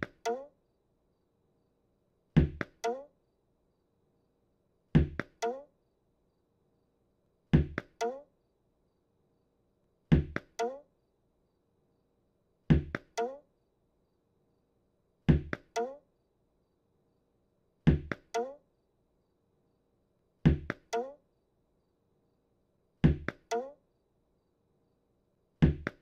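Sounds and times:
cartoon ball bouncing knocks: 2.4s - 3.0s, 5.0s - 5.6s, 7.6s - 8.2s, 12.7s - 13.4s, 15.3s - 16.0s, 17.9s - 18.5s.

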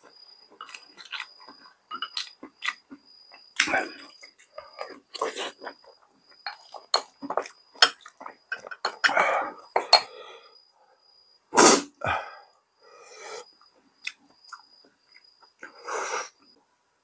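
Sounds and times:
utensils knocking against bowls: 7.8s - 10.1s
breathy exhalations: 9.0s - 10.6s, 12.0s - 13.5s.

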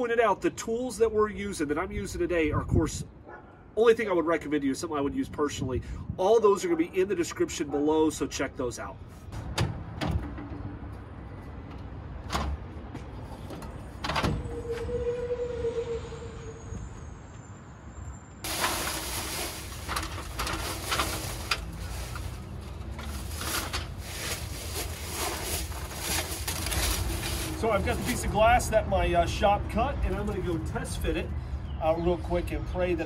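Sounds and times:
rustling of dry leaves: 18.4s - 28.4s
metal ladder clanking: 18.5s - 24.4s.

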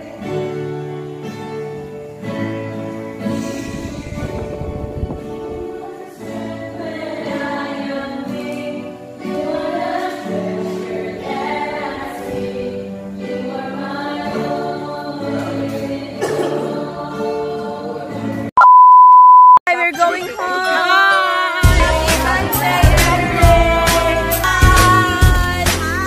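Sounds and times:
background music: 0.0s - 18.5s, 19.7s - 26.0s
group singing slow song: 3.2s - 18.5s, 20.5s - 26.0s.

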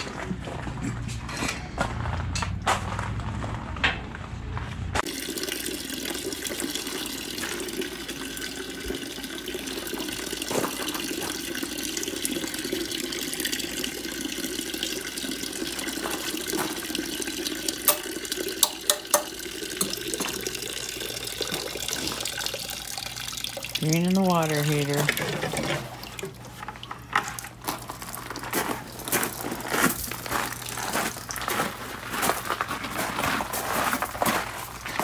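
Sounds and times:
water pouring into plastic bucket: 5.0s - 31.5s.

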